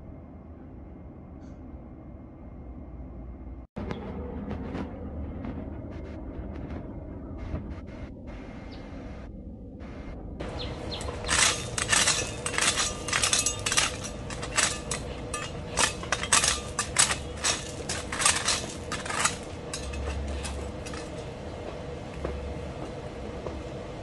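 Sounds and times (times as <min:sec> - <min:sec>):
trowel scraping through gravel: 0:10.8 - 0:21.3.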